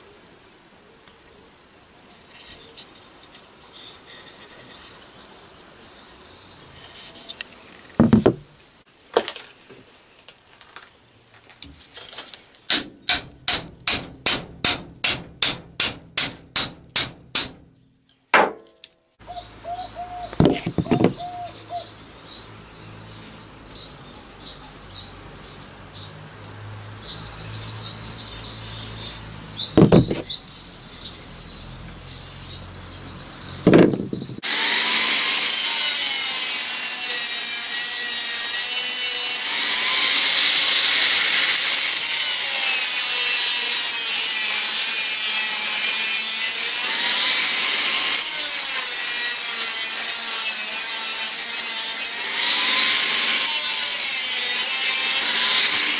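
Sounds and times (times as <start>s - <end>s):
knocks of hatchet head: 12.7s - 17.6s, 18.4s - 18.8s, 29.8s - 30.3s
birds chirping: 19.2s - 34.4s
angle grinder cutting steel: 33.8s - 55.9s.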